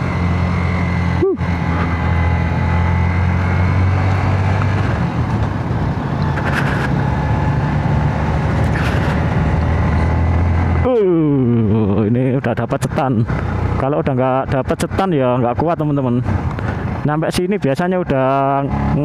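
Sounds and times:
motorcycle engine pulling uphill: 0:00.0 - 0:14.4.

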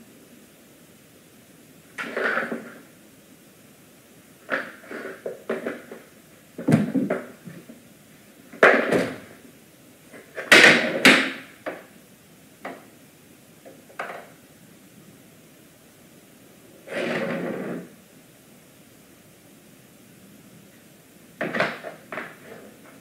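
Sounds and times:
knocks and clattering bumps: 0:06.6 - 0:07.8.

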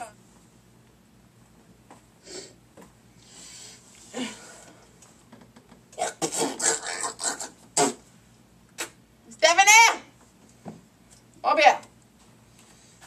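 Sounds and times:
person exhaling: 0:02.2 - 0:02.6, 0:03.2 - 0:04.8
muffled breathy vocal bursts: 0:06.0 - 0:08.1.

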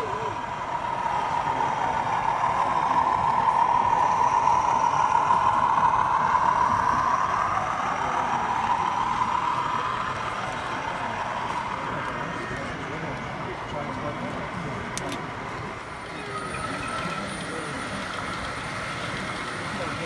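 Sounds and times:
model locomotive diesel engine sound: 0:00.0 - 0:20.0.

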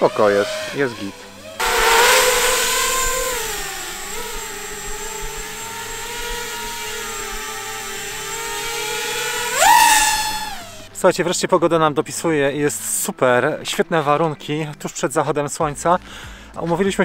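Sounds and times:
quadcopter motors whining: 0:00.0 - 0:11.0.

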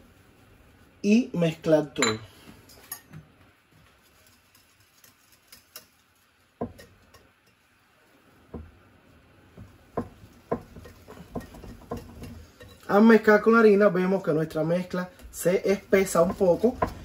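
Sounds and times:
utensil stirring thick batter: 0:03.8 - 0:07.7, 0:09.5 - 0:17.0
utensil knocking against bowl: 0:09.6 - 0:12.4.

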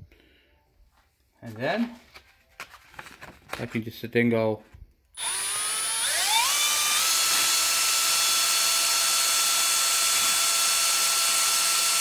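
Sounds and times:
drill motor whine: 0:05.2 - 0:12.0.

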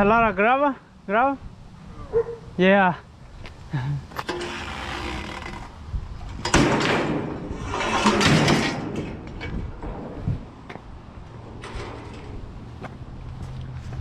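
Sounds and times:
hand truck rolling over asphalt: 0:04.1 - 0:14.0
metallic rattling and clanking: 0:06.3 - 0:12.8.

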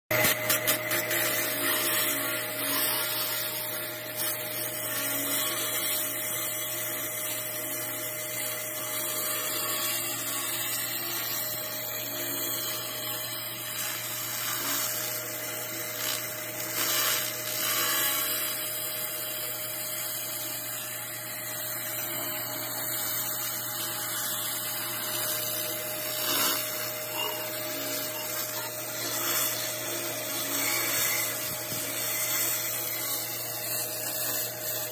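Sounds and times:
machine hum: 0:00.1 - 0:34.9
laser cleaner crackling hiss: 0:16.8 - 0:18.4.

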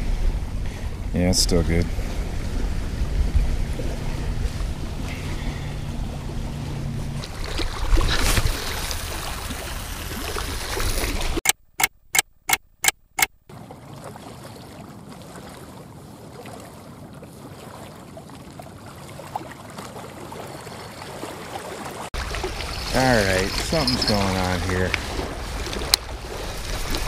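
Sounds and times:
wind: 0:00.0 - 0:27.0
short sharp clicks: 0:11.4 - 0:13.4
small waves lapping on rocks: 0:13.5 - 0:27.0.

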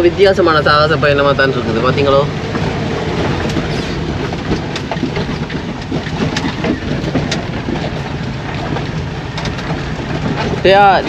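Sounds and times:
car road and engine noise: 0:00.0 - 0:11.0
rattles and knocks: 0:00.0 - 0:11.0.

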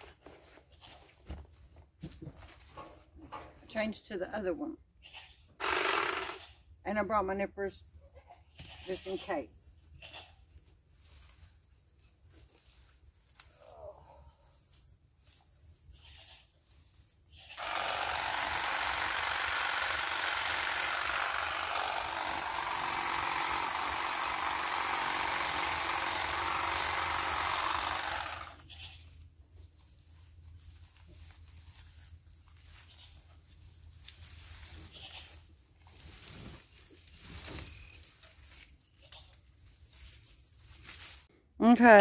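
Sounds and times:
brush rustling: 0:10.4 - 0:13.7, 0:27.4 - 0:41.3.

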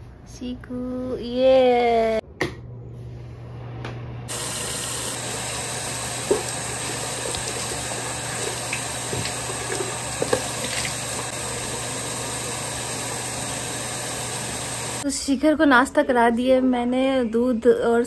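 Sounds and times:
tap running into sink: 0:04.3 - 0:11.4
water splashing on face: 0:04.3 - 0:15.0.

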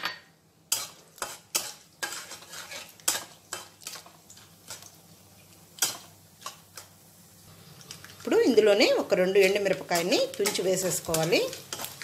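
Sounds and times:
spoon clicking and scraping pan: 0:00.0 - 0:04.9, 0:05.8 - 0:06.9, 0:09.4 - 0:12.0
faint sizzle: 0:00.0 - 0:12.0.

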